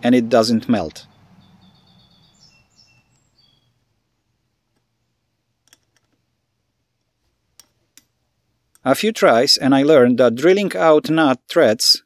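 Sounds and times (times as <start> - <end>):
faint high chirps: 1.0 - 4.4.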